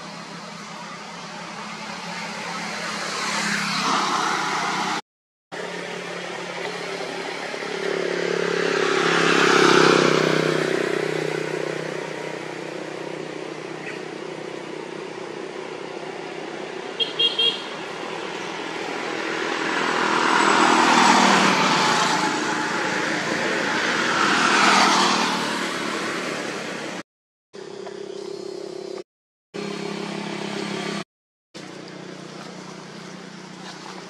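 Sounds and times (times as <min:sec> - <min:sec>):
motor vehicles passing: 0:00.0 - 0:27.0, 0:29.6 - 0:31.0, 0:31.6 - 0:34.0.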